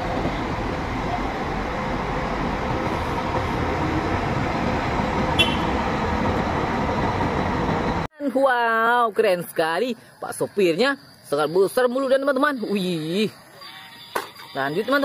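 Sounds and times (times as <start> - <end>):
bus diesel engine rumbling: 0.0 - 8.1.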